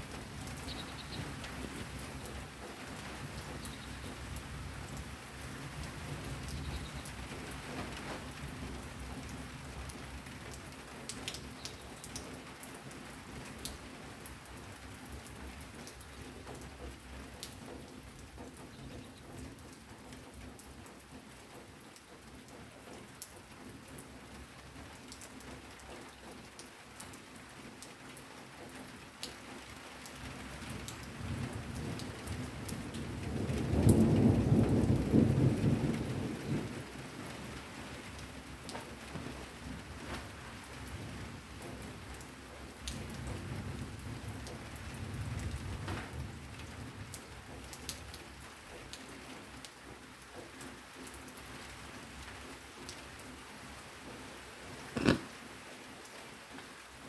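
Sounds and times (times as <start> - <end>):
steady rain: 0.0 - 57.0.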